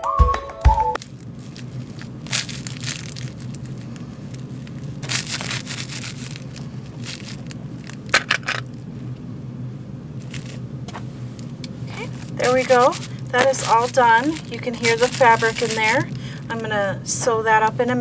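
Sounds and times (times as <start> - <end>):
crinkle fabric crackling: 1.0 - 8.8, 10.2 - 16.6.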